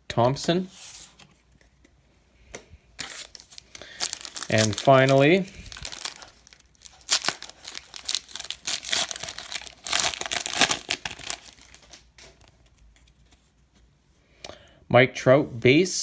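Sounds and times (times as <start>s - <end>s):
wrapper crinkling and tearing: 3.0s - 12.5s.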